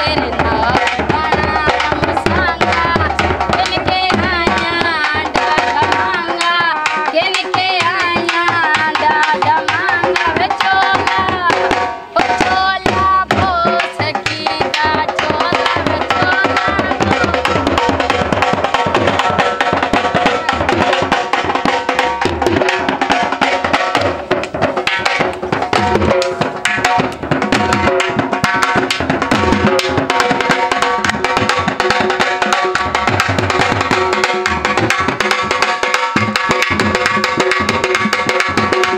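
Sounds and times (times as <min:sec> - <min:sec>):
women singing: 0:00.0 - 0:18.8
barrel drum beaten in folk rhythm: 0:00.0 - 0:38.9.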